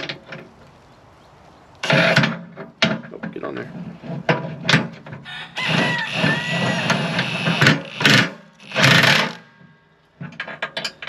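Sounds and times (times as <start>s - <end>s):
impact wrench hammering: 5.7s - 9.4s.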